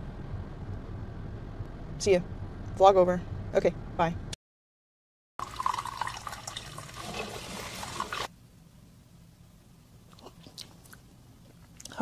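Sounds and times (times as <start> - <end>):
liquid pouring: 5.4 - 8.3
sipping hot drink: 5.4 - 8.3.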